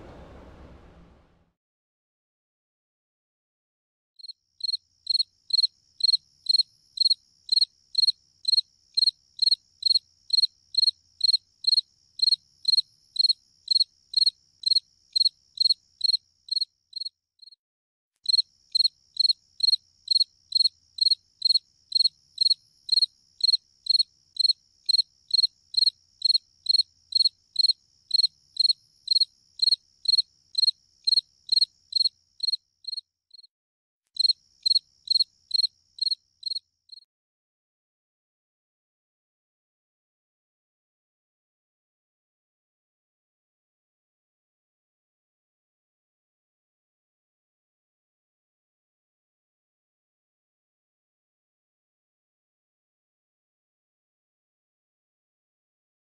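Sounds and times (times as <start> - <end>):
faint high buzz: 0.0 - 1.4
cricket chirping: 4.2 - 17.6, 18.2 - 33.5, 34.2 - 37.1.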